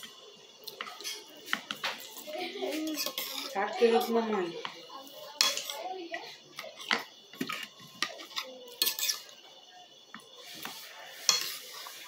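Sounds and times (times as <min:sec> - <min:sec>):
metal spoon scraping a plate: 0:02.8 - 0:04.1, 0:05.4 - 0:05.8, 0:06.8 - 0:09.3, 0:10.4 - 0:12.0.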